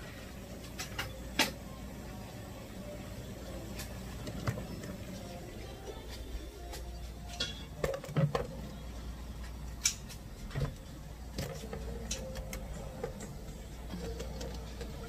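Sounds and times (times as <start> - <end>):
steady low hum: 0.0 - 15.0
pots and pans clattering: 7.3 - 8.6.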